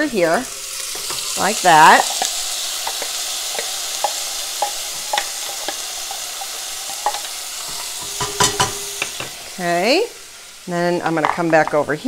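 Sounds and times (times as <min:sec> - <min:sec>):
onion sizzling in oil: 0:00.0 - 0:12.0
plastic bowl knocking on pan: 0:08.0 - 0:09.4.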